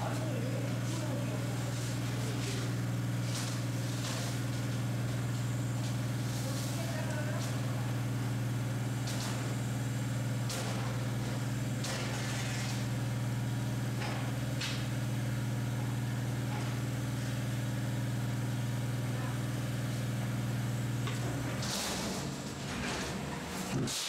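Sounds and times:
pump motor humming: 0.0 - 24.0.

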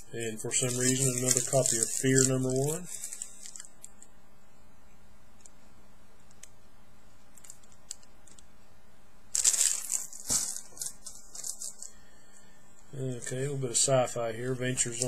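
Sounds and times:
plastic bags rustling and crinkling: 0.2 - 3.7, 9.3 - 12.0, 14.4 - 15.0.

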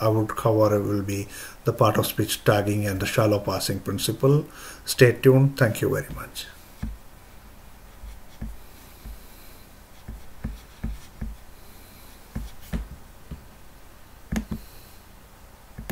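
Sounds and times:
hands thumping and rubbing on desk: 6.0 - 7.0, 8.0 - 9.3, 10.0 - 11.5, 12.3 - 13.5, 14.3 - 14.7.

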